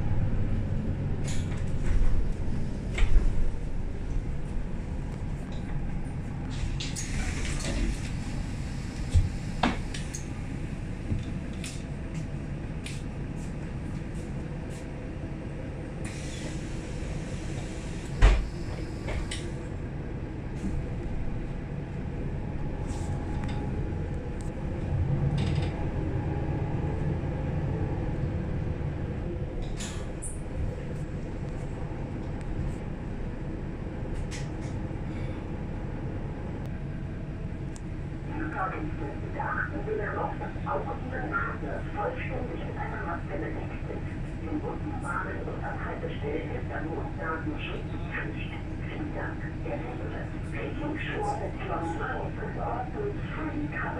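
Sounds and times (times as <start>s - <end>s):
bus engine humming: 0.0s - 53.9s.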